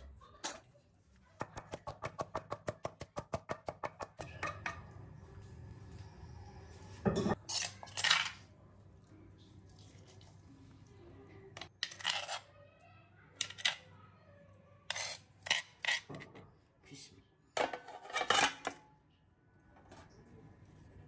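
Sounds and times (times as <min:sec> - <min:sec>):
steel kitchenware clattering: 0:07.0 - 0:08.5, 0:17.6 - 0:18.9.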